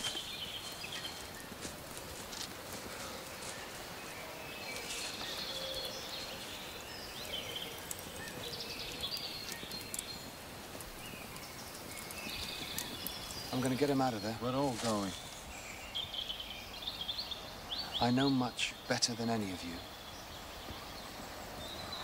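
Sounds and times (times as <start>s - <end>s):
birds chirping: 0.0s - 22.0s
faint clicks: 7.2s - 13.8s.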